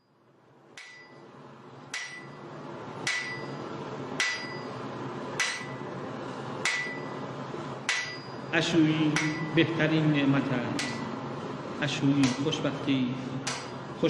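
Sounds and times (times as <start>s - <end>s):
ringing metal percussion: 0.8s - 1.2s, 3.1s - 4.8s, 7.9s - 8.5s.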